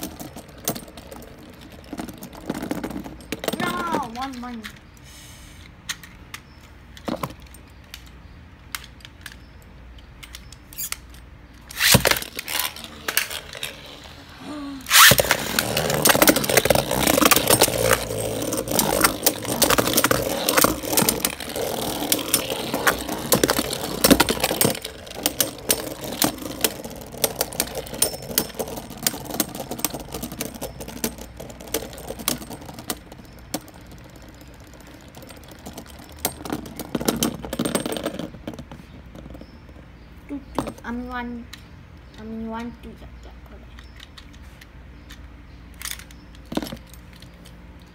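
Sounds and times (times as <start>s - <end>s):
spinning tops clattering and grinding: 0.0s - 4.8s, 10.3s - 39.8s.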